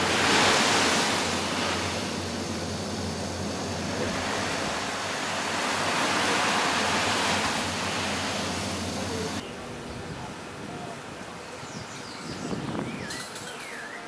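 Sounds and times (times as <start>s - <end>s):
surf washing onto beach: 0.0s - 9.4s
quiet outdoor ambience: 0.0s - 14.0s.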